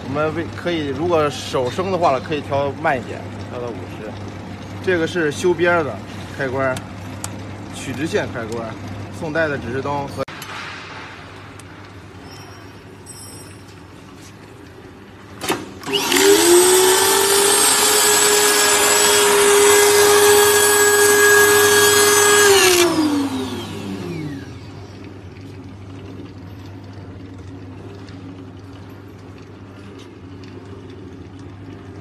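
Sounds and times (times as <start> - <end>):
cutter motor whining: 15.8 - 24.6
edge trimming rush: 15.9 - 23.6.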